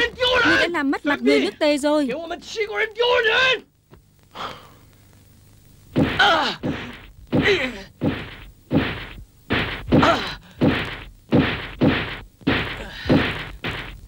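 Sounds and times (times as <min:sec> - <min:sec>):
wooden staff striking armour: 0:06.0 - 0:14.0
man groaning: 0:06.2 - 0:06.7, 0:07.4 - 0:07.9, 0:09.9 - 0:10.6.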